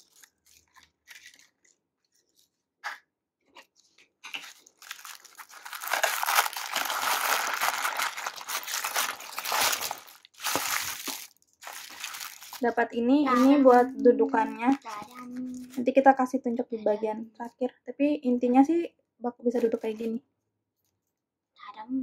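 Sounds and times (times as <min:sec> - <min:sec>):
wrapping crinkling and tearing: 0:00.0 - 0:02.8, 0:03.6 - 0:15.9.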